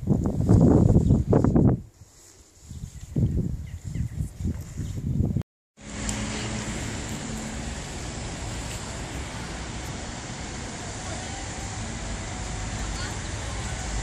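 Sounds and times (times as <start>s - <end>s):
city traffic hum: 5.8s - 14.0s.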